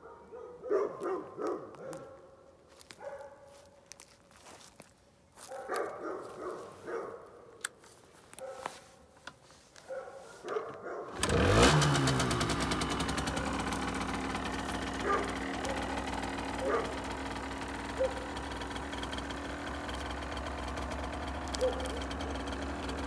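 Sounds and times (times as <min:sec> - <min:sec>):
scooter engine starting and idling: 0:10.5 - 0:23.0.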